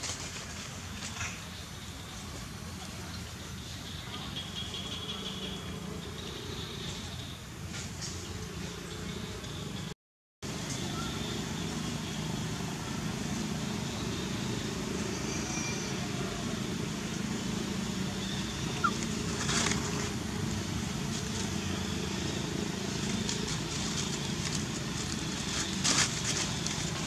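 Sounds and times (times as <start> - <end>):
dry leaves rustling and crackling: 18.8 - 27.0.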